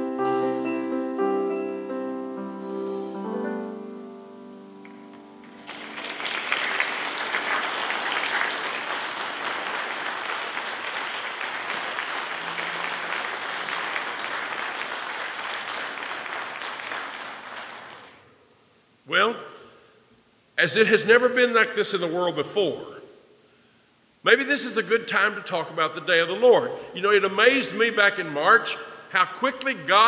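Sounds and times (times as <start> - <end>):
grand piano notes: 0.0 - 7.4
audience applause: 5.5 - 18.2.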